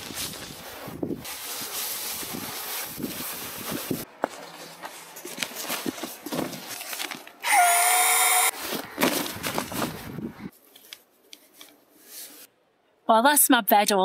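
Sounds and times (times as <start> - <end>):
fabric rustling and crinkling: 0.0 - 7.4, 8.5 - 12.5
small electric motor whirring: 7.4 - 8.5.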